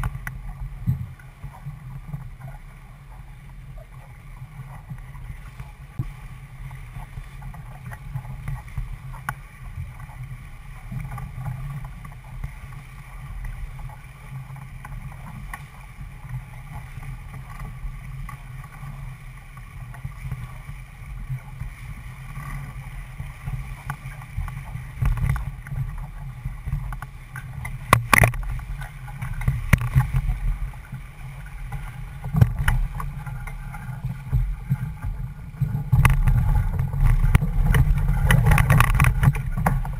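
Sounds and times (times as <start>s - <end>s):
water rushing along hull: 0.0s - 39.9s
wind buffeting microphone: 27.9s - 39.9s.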